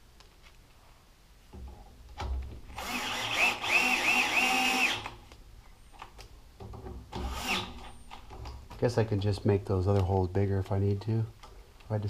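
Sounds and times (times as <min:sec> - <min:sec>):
cordless drill whining: 0:02.7 - 0:05.2, 0:07.2 - 0:08.2.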